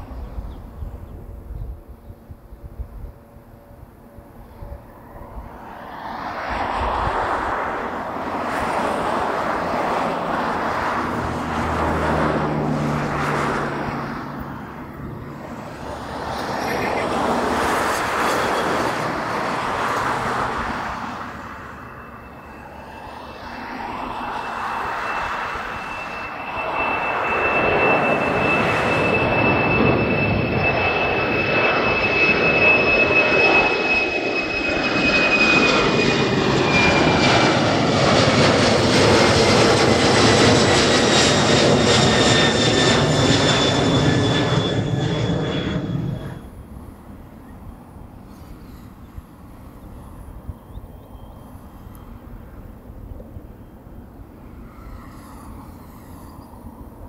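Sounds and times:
jet engines roaring: 0.0 - 57.0
high-pitched whine: 13.9 - 46.7.

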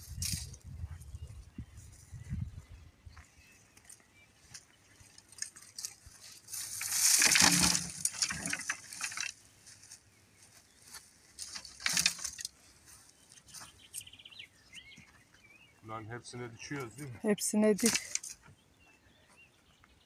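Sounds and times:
wooden stakes rattling and clattering: 0.0 - 0.8, 4.5 - 10.0, 10.8 - 14.0, 16.8 - 18.5.

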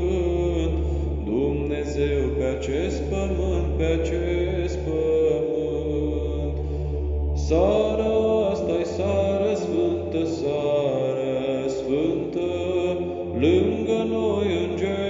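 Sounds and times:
low steady drone: 0.0 - 15.0
person singing carol: 7.4 - 15.0.

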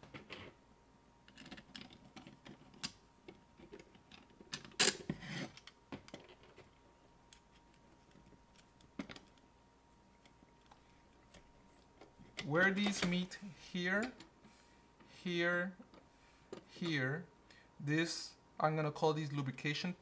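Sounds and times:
plastic parts clicking and knocking: 1.3 - 6.8.

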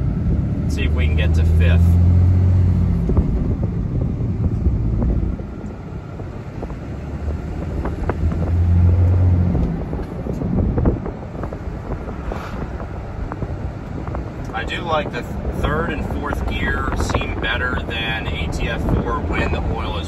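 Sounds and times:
diesel engine drone: 0.0 - 20.0
road noise: 0.0 - 20.0.

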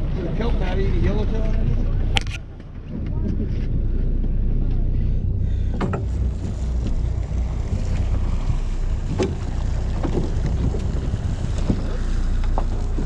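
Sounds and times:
boat engine drone: 0.0 - 13.0
wind on microphone: 2.8 - 13.0.

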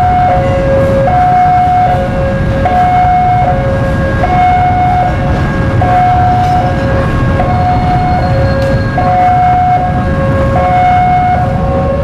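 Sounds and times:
level crossing two-tone alarm: 0.0 - 11.8
train rumbling past: 0.0 - 12.0.

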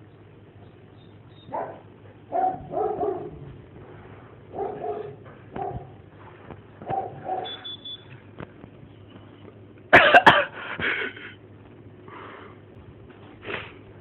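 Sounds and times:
person coughing: 9.9 - 11.4.

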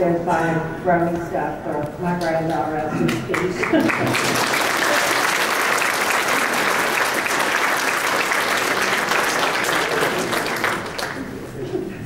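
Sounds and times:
audience applauding: 3.1 - 11.4.

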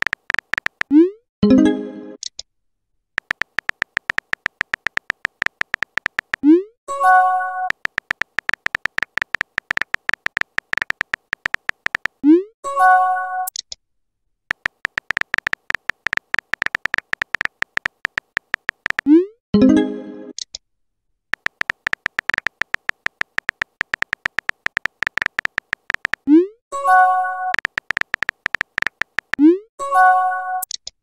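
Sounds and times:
phone keyboard tapping clicks: 0.0 - 1.0, 3.2 - 6.5, 7.6 - 12.2, 14.5 - 19.1, 21.3 - 26.3, 27.5 - 29.5.

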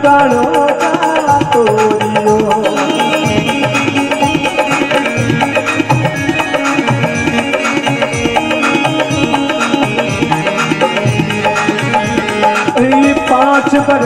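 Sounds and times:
hand drum beat: 0.0 - 14.0
held melodic tones: 2.0 - 14.0.

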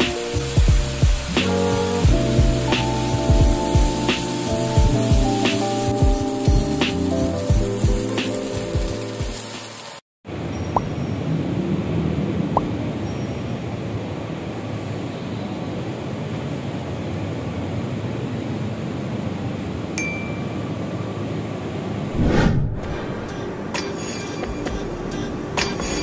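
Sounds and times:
traffic and crowd hum: 17.5 - 25.7.

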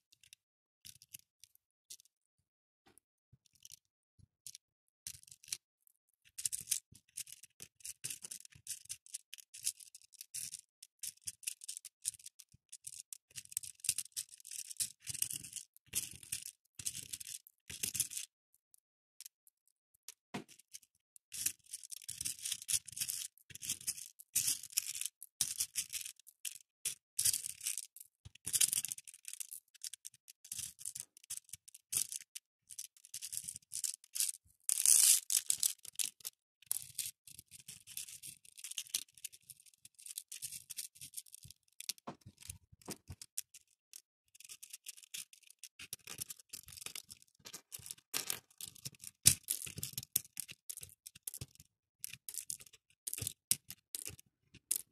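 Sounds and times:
plastic beads clicking and rattling: 12.9 - 18.2, 21.3 - 54.9.

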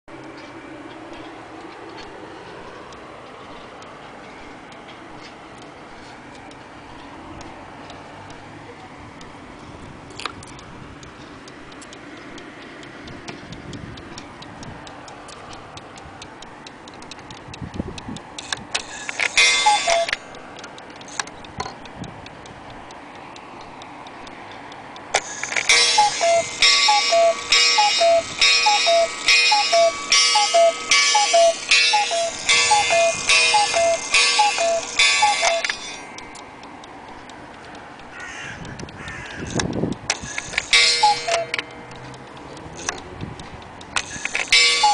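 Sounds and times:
clock ticking softly: 0.1 - 44.9
clock playing tune: 18.4 - 21.2, 25.2 - 36.4, 40.1 - 43.0, 44.0 - 44.9.

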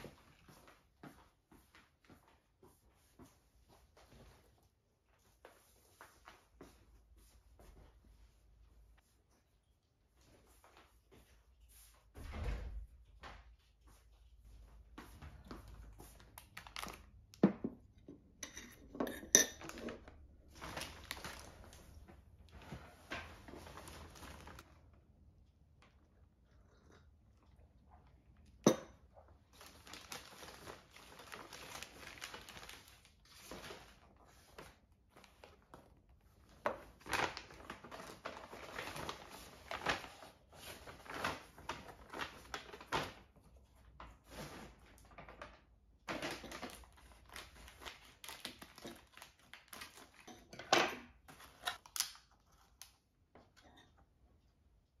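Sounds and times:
shopping bags rustling: 19.6 - 24.7, 29.5 - 35.6, 46.0 - 50.2.

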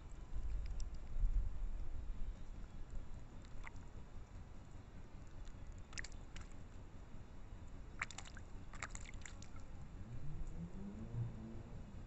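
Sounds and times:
steady low rumble: 0.0 - 12.0
bird splashing in water dish: 3.4 - 3.8, 5.4 - 6.6, 8.0 - 9.6.

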